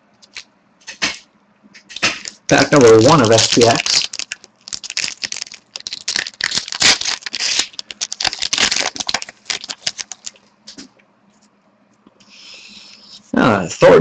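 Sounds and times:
foil wrapper crinkling: 0.2 - 0.5, 1.9 - 10.4.

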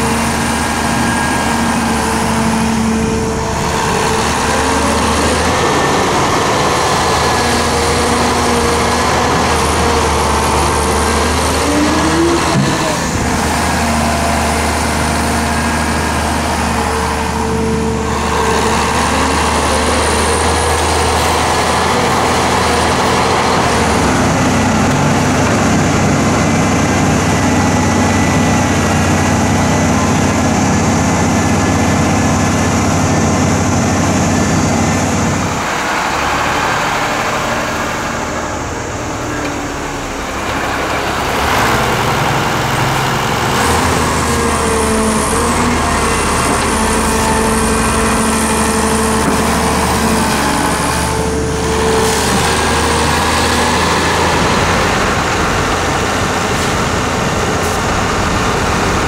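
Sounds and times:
heavy diesel engines running: 0.0 - 59.0.

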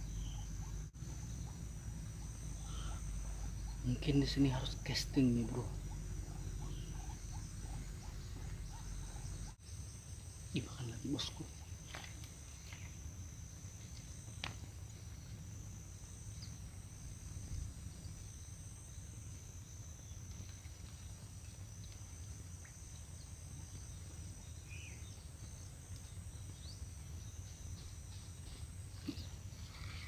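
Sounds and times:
faint chirps: 0.0 - 15.4
insects shrilling: 0.0 - 21.7.

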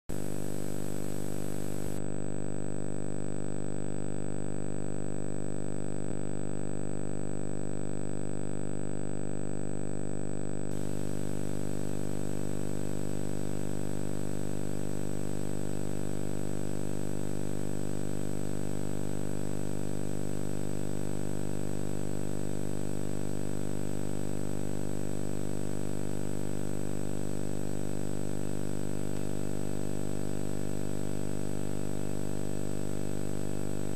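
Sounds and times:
electrical hum: 0.1 - 2.0
tape hiss: 0.1 - 2.0.

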